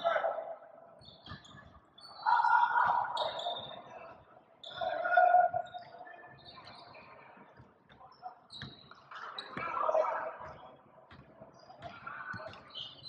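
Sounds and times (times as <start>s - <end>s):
basketball shoes squeaking: 1.0s - 3.9s, 5.6s - 7.2s, 8.5s - 9.8s, 10.4s - 13.0s.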